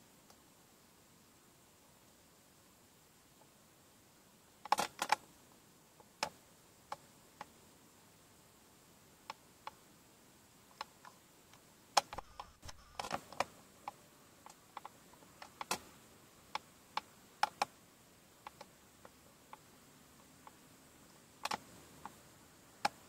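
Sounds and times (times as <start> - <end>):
crackling: 10.7 - 17.7
sharp clicks and ticks: 10.8 - 13.5, 21.4 - 22.2.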